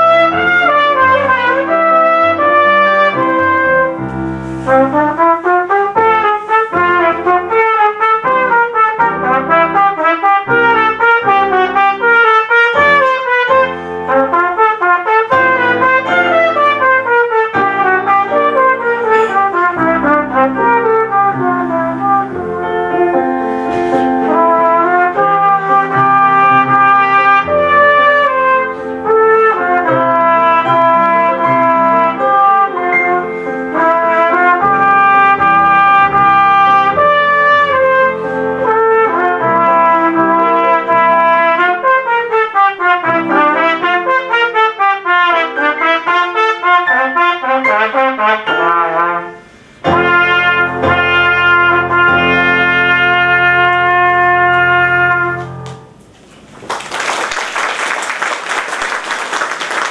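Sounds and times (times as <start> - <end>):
trumpet playing: 0.0 - 56.0
electric keyboard accompaniment: 0.0 - 56.8.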